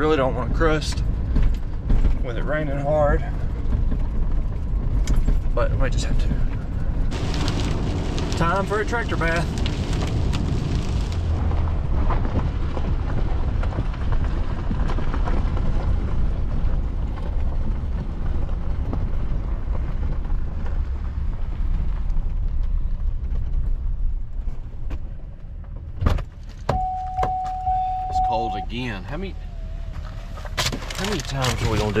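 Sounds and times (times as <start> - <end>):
truck engine rumble: 0.0 - 32.0
door-open chime: 26.7 - 28.7.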